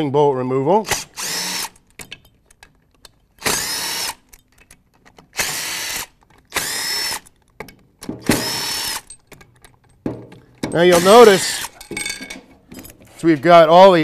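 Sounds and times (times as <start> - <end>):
power tool whining: 0.9 - 1.9, 3.4 - 4.4, 5.3 - 7.4, 8.2 - 9.2, 10.8 - 11.8.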